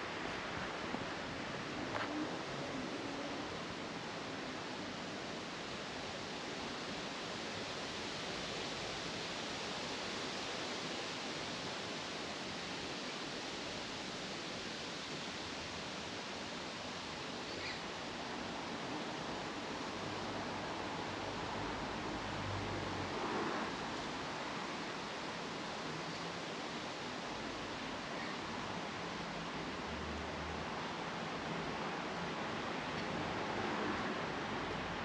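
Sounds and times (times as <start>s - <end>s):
outdoor background hiss: 0.0s - 35.0s
faint high chirp: 17.5s - 17.8s.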